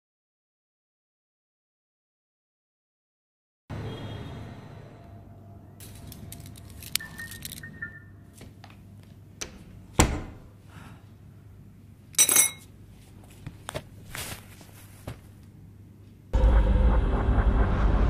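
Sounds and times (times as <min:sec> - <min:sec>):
keys jangling at a door: 0:05.9 - 0:07.6.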